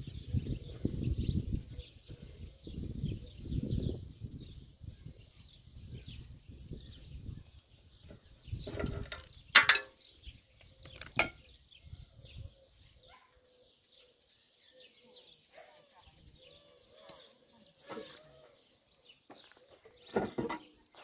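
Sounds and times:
birds chirping: 0:00.0 - 0:21.0
metal tools knocking together: 0:08.7 - 0:10.0.

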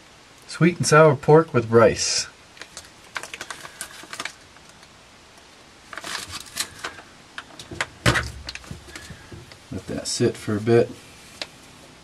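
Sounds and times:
foil pouch crinkling: 0:02.6 - 0:04.9, 0:05.8 - 0:11.6
pouch thump set down: 0:08.0 - 0:09.5.

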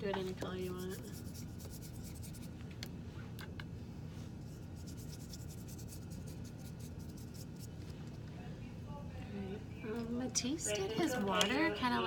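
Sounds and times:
steady low hum: 0:00.0 - 0:12.0
paintbrush bristles scratching paper: 0:00.5 - 0:02.5, 0:04.5 - 0:07.7.

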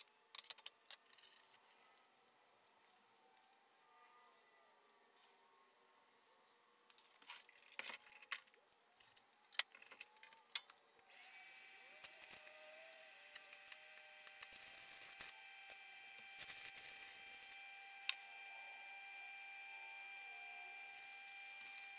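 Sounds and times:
metal clinks and knocks: 0:06.9 - 0:10.4
welding hiss with high whine: 0:11.1 - 0:21.9.

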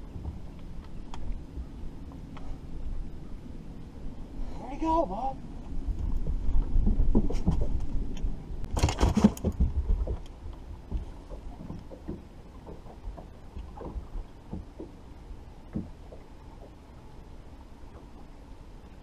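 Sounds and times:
water lapping against hull: 0:00.0 - 0:19.0
wind buffeting microphone: 0:05.6 - 0:14.9
light knocks: 0:15.7 - 0:16.8.

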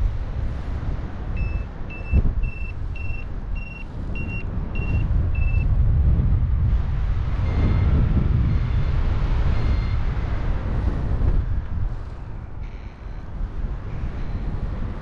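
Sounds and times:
wind rumble on microphone: 0:00.0 - 0:15.0
variometer short beeps: 0:01.4 - 0:05.7, 0:08.5 - 0:10.1, 0:13.9 - 0:14.6.

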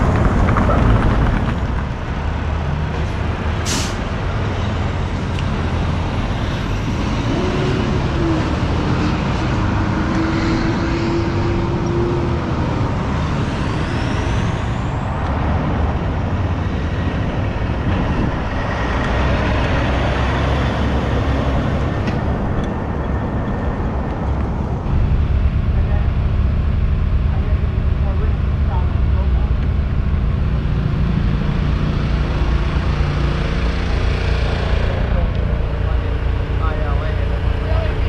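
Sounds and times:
diesel trucks driving past: 0:00.0 - 0:38.0
road traffic noise: 0:00.0 - 0:38.0
rising whine: 0:04.2 - 0:38.0
steady hum: 0:24.7 - 0:38.0.

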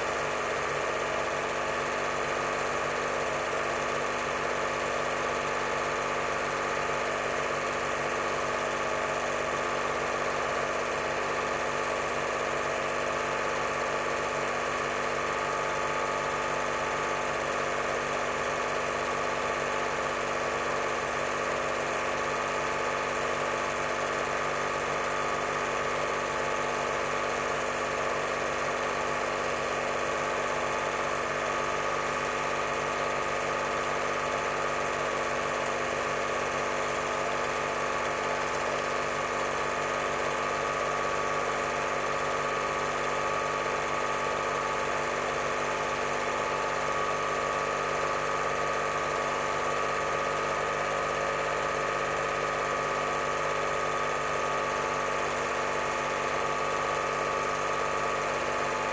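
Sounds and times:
cine projector whirring: 0:00.0 - 0:58.9.

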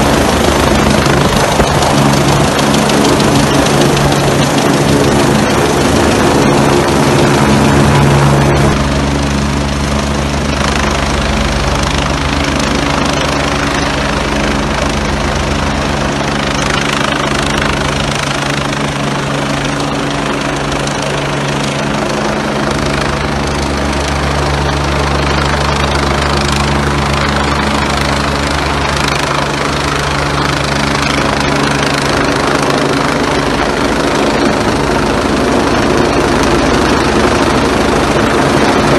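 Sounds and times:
helicopter hovering: 0:00.0 - 0:38.9.

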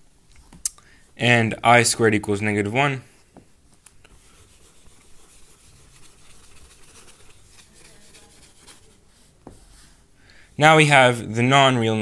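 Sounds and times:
rubbing on a whiteboard: 0:04.1 - 0:10.1.

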